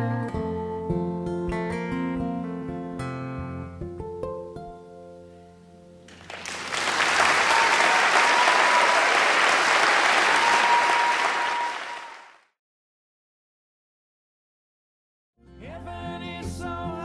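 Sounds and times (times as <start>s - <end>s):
acoustic guitar notes ringing: 0.4s - 6.1s
audience applause: 6.1s - 12.5s.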